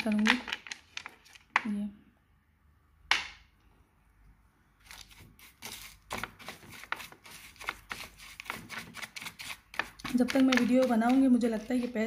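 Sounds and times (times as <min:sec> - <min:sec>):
spoon stirring grit in glass bowl: 0:04.9 - 0:12.0.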